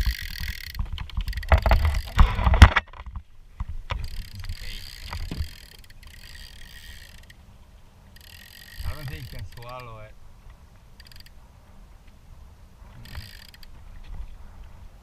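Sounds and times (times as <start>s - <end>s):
fishing reel clicker ratcheting: 0.0s - 2.3s, 3.9s - 7.4s, 8.1s - 10.0s, 11.0s - 11.4s, 13.0s - 13.8s
knocks of gear on kayak: 0.8s - 4.1s.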